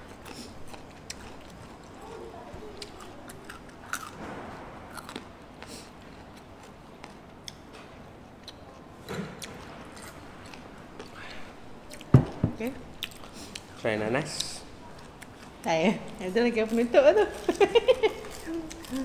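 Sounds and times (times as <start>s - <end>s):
chewing crunchy fried chicken: 0.0s - 7.6s, 8.2s - 12.1s, 12.9s - 19.0s
loud knock: 12.1s - 12.6s.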